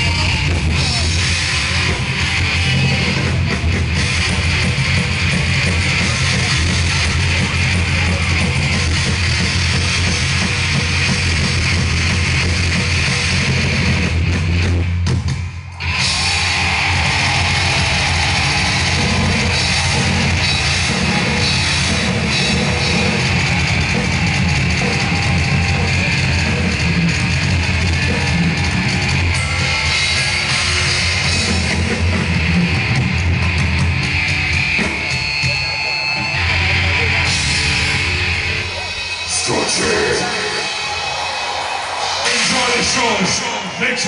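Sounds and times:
bass guitar: 0.0s - 43.2s
distorted electric guitar: 0.0s - 44.0s
drum kit: 0.0s - 44.0s
live heavy metal band: 0.0s - 44.0s.

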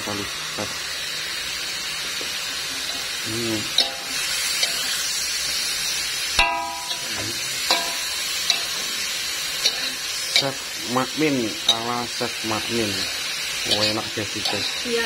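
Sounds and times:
food sizzling in a wok: 0.0s - 15.0s
metal spatula scraping wok: 3.7s - 10.8s, 11.6s - 15.0s.

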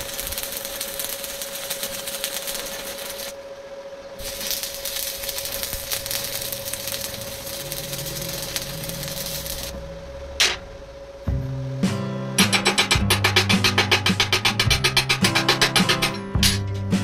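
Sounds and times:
welding arc crackling: 0.0s - 3.4s, 4.2s - 11.0s, 12.4s - 16.8s
steady hum: 0.0s - 17.0s.

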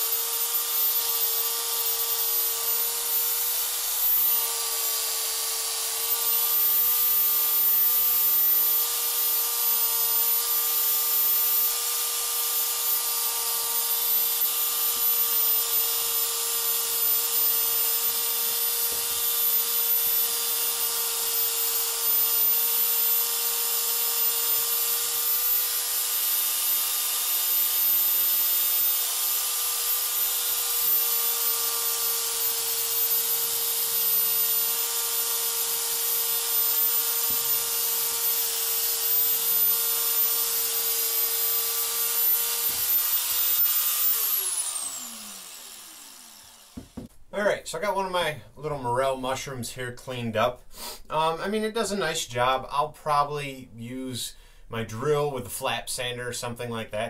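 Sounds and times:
belt sander whining: 0.0s - 47.2s
abrasive hissing on wood: 50.7s - 51.1s.

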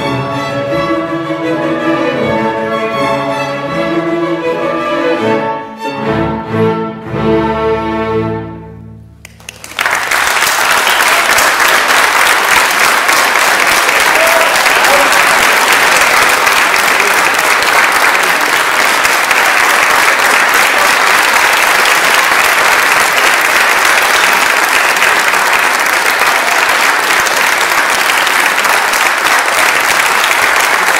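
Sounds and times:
audience applause: 9.2s - 30.9s.

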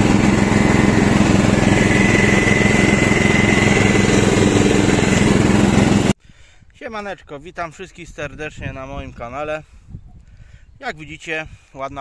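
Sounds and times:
lawn tractor engine running: 0.0s - 6.2s
thin high whine: 0.0s - 6.2s.

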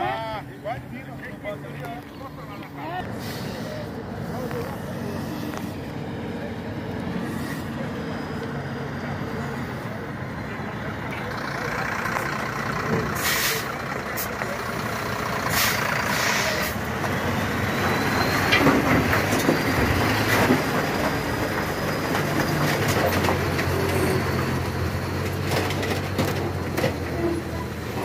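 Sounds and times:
diesel truck engine running: 0.0s - 28.0s
air brakes hissing: 3.1s - 4.4s, 7.2s - 7.8s, 13.1s - 14.4s, 15.4s - 16.8s.

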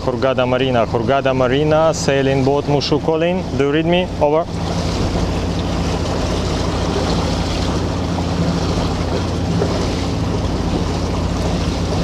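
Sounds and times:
boat engine hum: 0.0s - 12.0s
water noise: 0.0s - 12.0s
wind: 0.0s - 12.0s.

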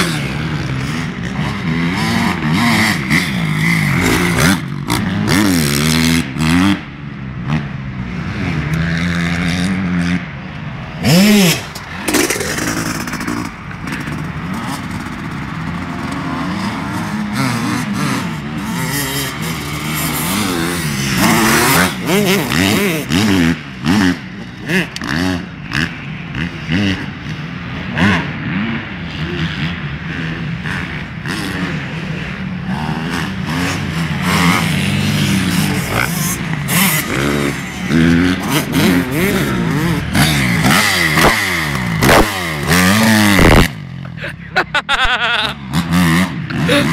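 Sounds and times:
dirt bike engines revving: 0.0s - 46.9s.

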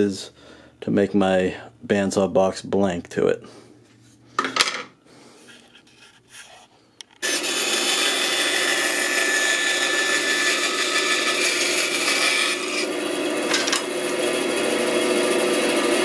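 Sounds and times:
bandsaw cutting wood: 7.2s - 16.0s.

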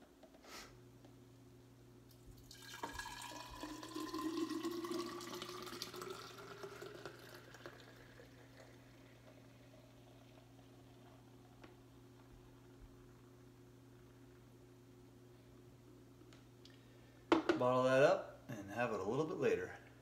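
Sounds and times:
faint steady hum: 0.0s - 20.0s
juice pouring into glass jar: 2.1s - 13.2s.

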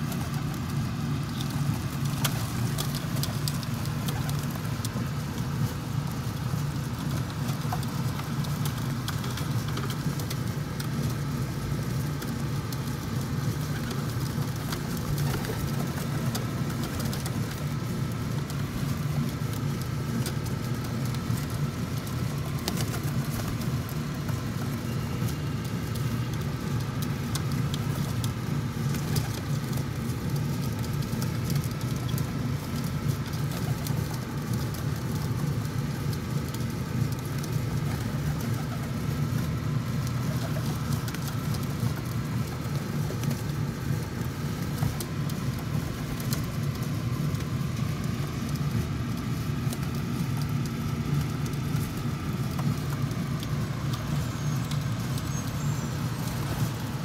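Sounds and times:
faint hum: 0.0s - 57.0s
low city rumble: 0.0s - 57.0s.

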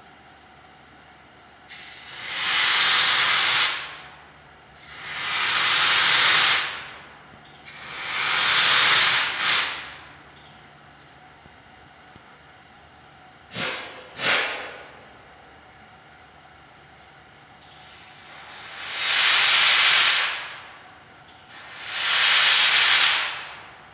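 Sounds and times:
steam locomotive hissing blasts: 1.7s - 10.2s, 13.5s - 15.1s, 17.7s - 23.9s.

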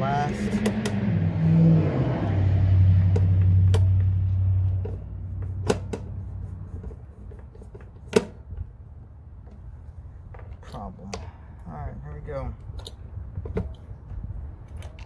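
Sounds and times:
low steady rumble: 0.0s - 15.0s
sharp clicks and snaps of connectors: 0.5s - 1.0s.

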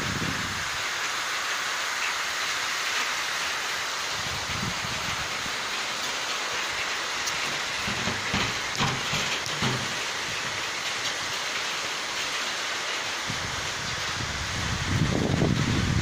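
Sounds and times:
heavy rain on rooftops: 0.0s - 16.0s
low bumps: 7.3s - 11.1s.

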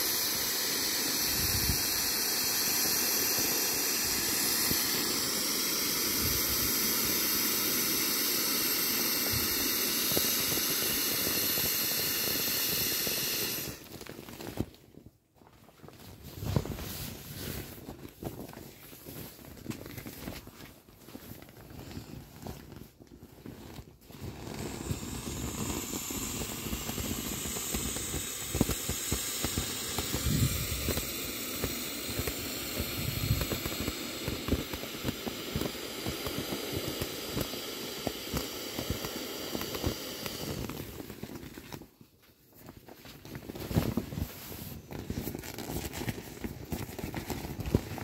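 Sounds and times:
air hissing from valve: 0.0s - 14.0s, 24.0s - 41.6s
vinyl crinkling and rubbing: 13.8s - 32.4s, 40.5s - 48.0s.

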